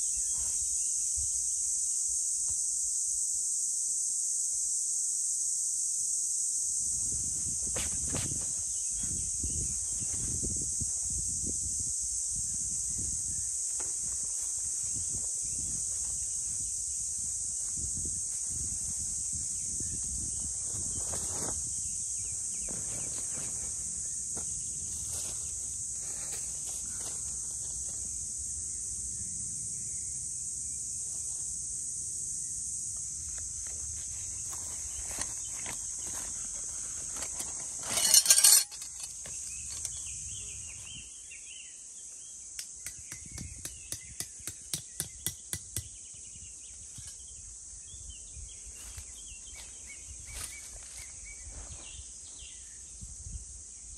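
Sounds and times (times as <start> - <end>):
insects buzzing: 0.0 - 53.9
tent stake being hammered: 42.6 - 46.0.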